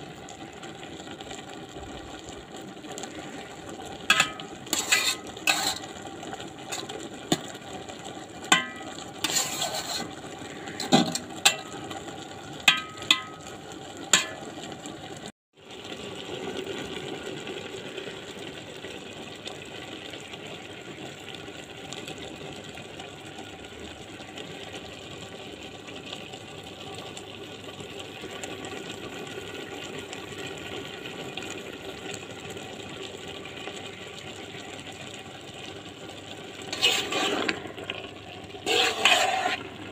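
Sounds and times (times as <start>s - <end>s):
steaming pan hissing: 3.0s - 7.6s, 8.2s - 11.9s, 36.5s - 39.9s
spoon scraping a pan: 4.0s - 7.6s, 8.4s - 12.0s, 12.7s - 13.6s, 14.2s - 14.6s, 36.7s - 39.7s.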